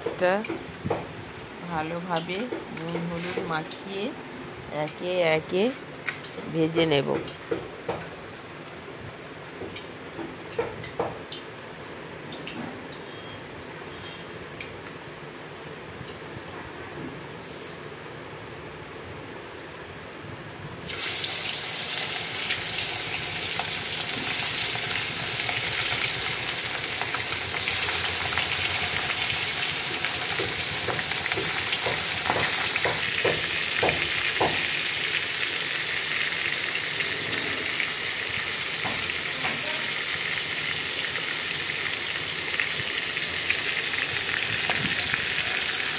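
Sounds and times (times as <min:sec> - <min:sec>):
fish sizzling in hot oil: 0:20.8 - 0:45.9.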